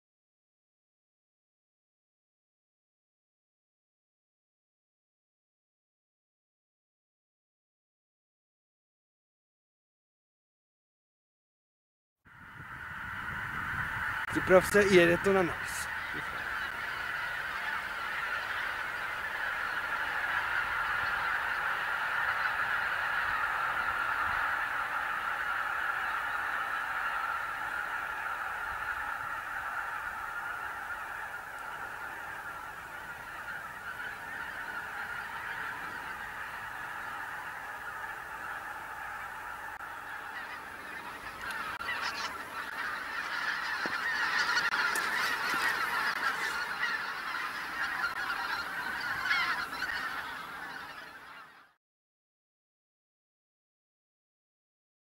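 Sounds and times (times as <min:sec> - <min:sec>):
geese honking and cackling: 0:12.3 - 0:51.8.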